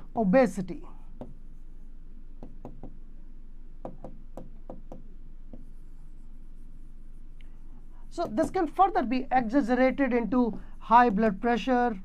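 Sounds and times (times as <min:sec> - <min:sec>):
pen tapping on glass: 0:02.4 - 0:03.0, 0:03.8 - 0:05.7.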